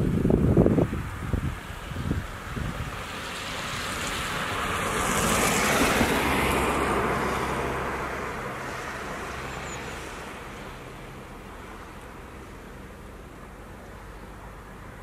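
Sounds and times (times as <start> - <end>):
wind buffeting microphone: 0.0 - 9.2
strong wind through trees: 0.0 - 15.0.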